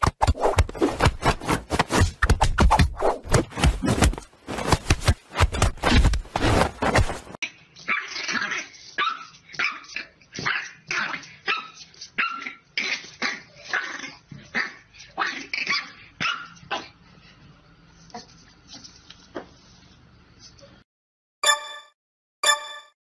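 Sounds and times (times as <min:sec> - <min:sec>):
puppy yapping barks: 0:15.7 - 0:16.8.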